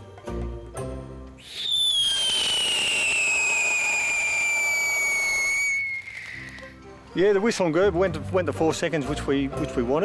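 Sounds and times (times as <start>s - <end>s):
firework shrill whistle and hiss: 1.4s - 6.8s.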